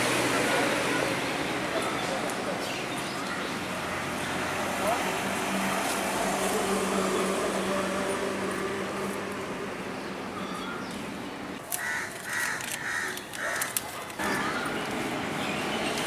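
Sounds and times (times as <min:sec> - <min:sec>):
street traffic hum: 0:00.0 - 0:16.0
crow cawing: 0:11.7 - 0:14.8.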